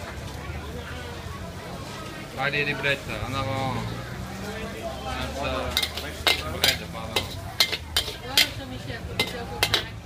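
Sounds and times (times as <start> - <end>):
noodles sizzling: 1.8 - 10.0
metal spatula clanking on wok: 5.6 - 10.0.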